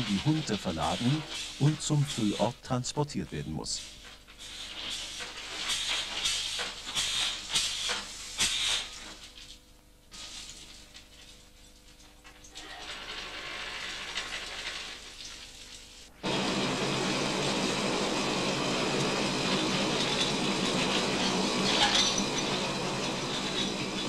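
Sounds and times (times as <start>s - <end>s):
mine cars rattling along track: 0.0s - 2.5s, 16.3s - 24.0s
ore running from chute: 0.0s - 3.7s.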